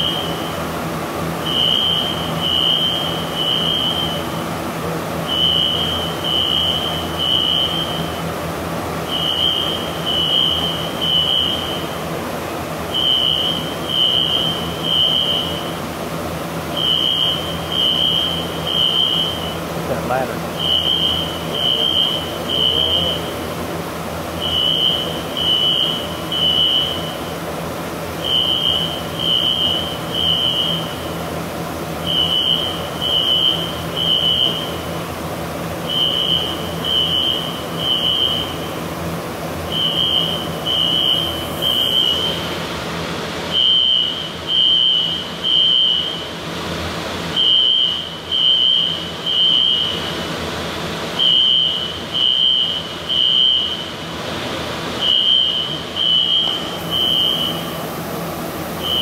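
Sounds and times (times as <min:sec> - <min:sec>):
fire alarm beeps: 0:00.0 - 0:00.7, 0:01.4 - 0:04.4, 0:05.3 - 0:08.3, 0:09.1 - 0:12.0, 0:12.9 - 0:15.8, 0:16.8 - 0:23.3, 0:24.3 - 0:27.2, 0:28.2 - 0:31.2, 0:32.0 - 0:35.0, 0:35.8 - 0:38.8, 0:39.7 - 0:42.5, 0:43.5 - 0:46.3, 0:47.4 - 0:50.1, 0:51.2 - 0:54.0, 0:55.0 - 0:57.8, 0:58.8 - 0:59.0
foam generators rushing: 0:00.0 - 0:59.0.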